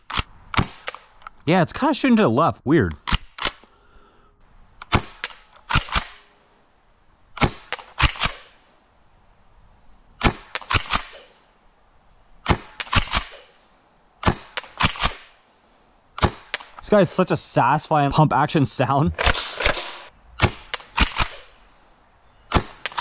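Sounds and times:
airsoft shotgun shots: 0:00.1 - 0:01.1, 0:04.9 - 0:06.3, 0:07.4 - 0:08.6, 0:10.2 - 0:11.4, 0:12.4 - 0:13.5, 0:14.2 - 0:15.4, 0:16.2 - 0:16.8, 0:19.2 - 0:21.5, 0:22.5 - 0:23.0
shotgun pump racking: 0:00.1 - 0:01.4.

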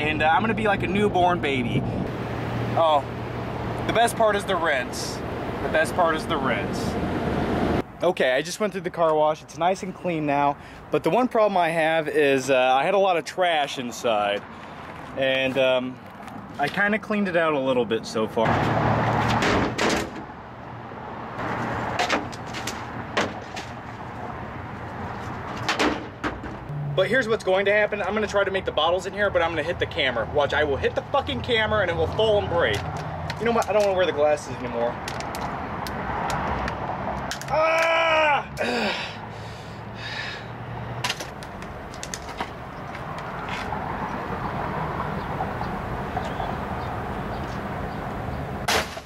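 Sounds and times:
outdoor background noise: 0:00.0 - 0:49.0
trash knocking and rustling: 0:21.4 - 0:24.0, 0:25.2 - 0:26.7.

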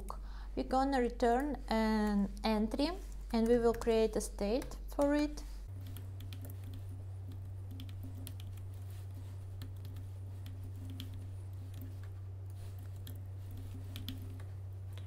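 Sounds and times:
steady low hum: 0:00.0 - 0:15.0
keyboard typing: 0:05.8 - 0:15.0.

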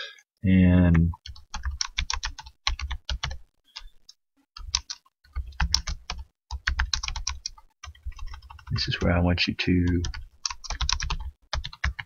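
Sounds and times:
typing on computer keyboard: 0:00.9 - 0:03.9, 0:04.6 - 0:09.1, 0:09.9 - 0:12.0.

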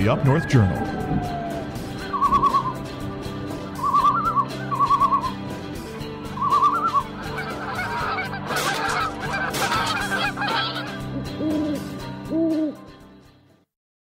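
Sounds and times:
music bed: 0:00.0 - 0:13.6
geese honking: 0:06.3 - 0:11.8.

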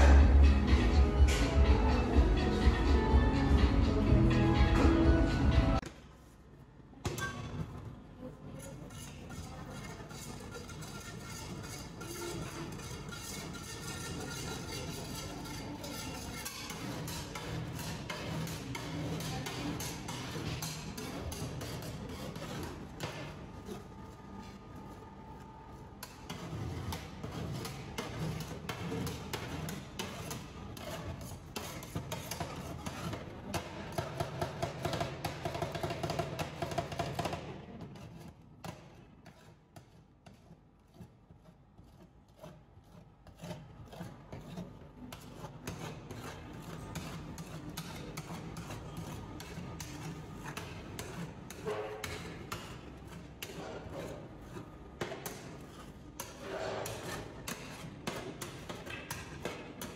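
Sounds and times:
background music: 0:00.0 - 0:05.8
metal spatulas scraping metal plate: 0:08.6 - 0:23.8, 0:26.0 - 0:39.6, 0:42.4 - 0:59.9.

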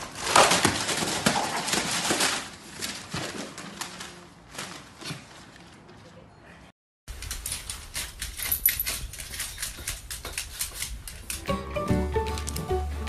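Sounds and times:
dog claws scratching a door: 0:07.1 - 0:11.5.

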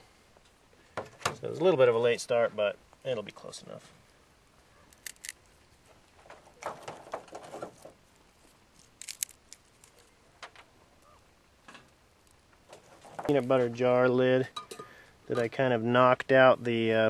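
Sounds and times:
fire crackling and popping: 0:04.4 - 0:13.9.

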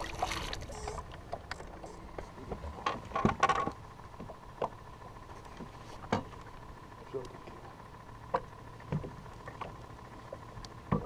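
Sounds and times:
knocks in boat: 0:02.8 - 0:03.7.

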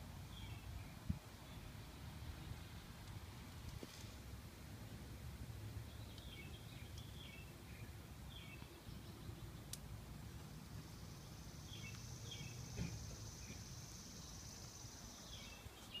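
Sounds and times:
bird chirping: 0:00.3 - 0:02.1, 0:05.8 - 0:09.7, 0:10.8 - 0:16.0.

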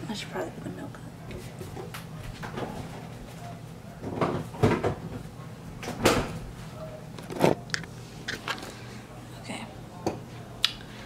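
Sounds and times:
refrigerator door shutting: 0:05.8 - 0:06.4.

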